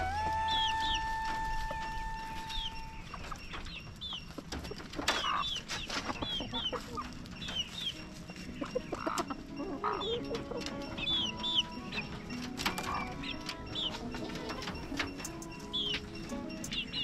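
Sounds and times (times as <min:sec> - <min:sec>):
long held call: 0:00.0 - 0:03.2
chickens clucking: 0:00.0 - 0:17.0.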